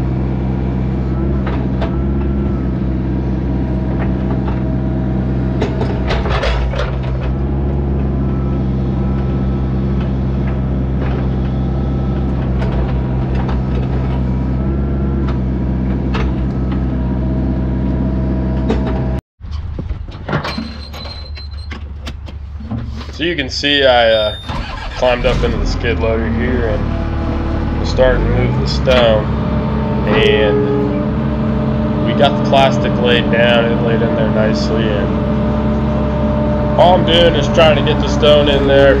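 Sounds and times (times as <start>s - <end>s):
diesel engine running: 0.0s - 19.2s, 22.1s - 39.0s
quieter machine sound: 23.3s - 39.0s.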